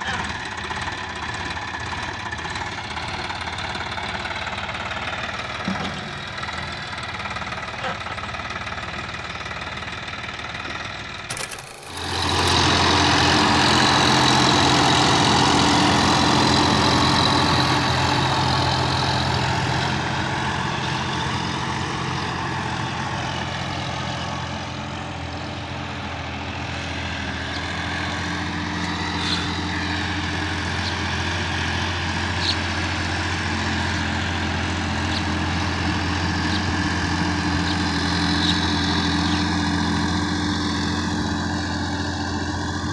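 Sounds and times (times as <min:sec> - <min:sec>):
tractor diesel engine under load: 0:00.0 - 0:42.9
rotary tiller churning soil: 0:11.2 - 0:21.8, 0:27.0 - 0:42.9.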